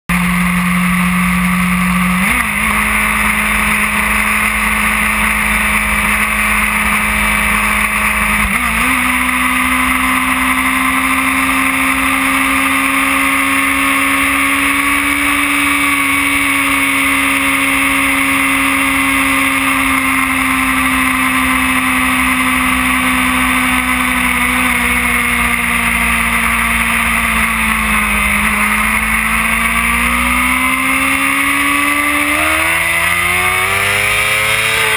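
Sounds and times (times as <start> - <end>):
motorcycle engine running: 0.1 - 34.9.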